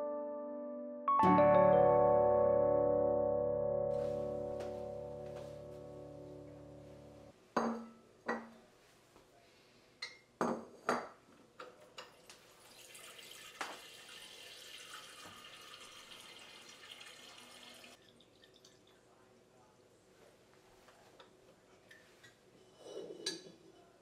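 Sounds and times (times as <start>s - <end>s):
glass pitcher knocking on sink: 7.6s - 8.5s
tap water filling pitcher: 12.0s - 19.0s.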